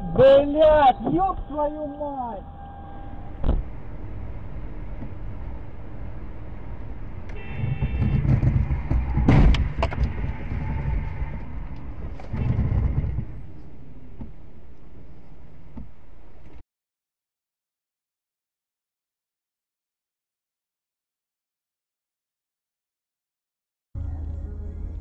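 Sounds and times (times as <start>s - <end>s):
engine and road rumble: 0.0s - 16.6s, 24.0s - 25.0s.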